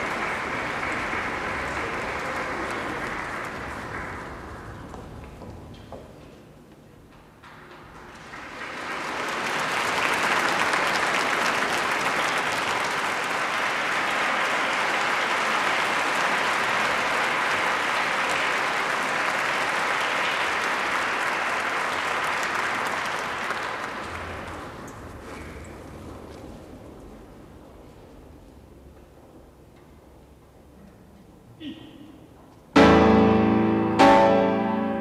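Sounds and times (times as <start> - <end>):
large audience applauding: 0.0 - 5.7, 7.4 - 27.6.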